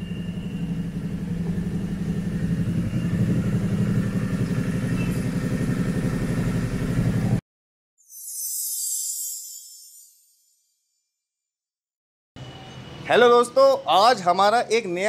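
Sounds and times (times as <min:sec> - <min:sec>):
motorcycle engine idling: 0:00.0 - 0:07.4
bright shimmering jingle: 0:08.0 - 0:10.8.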